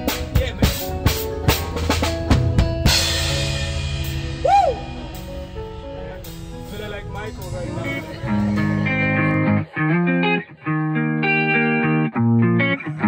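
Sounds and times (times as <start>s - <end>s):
drum fill: 0.0s - 9.3s
band holding a chord: 0.0s - 10.4s
cymbal crash: 2.9s - 9.2s
high note rising and falling: 3.4s - 9.5s.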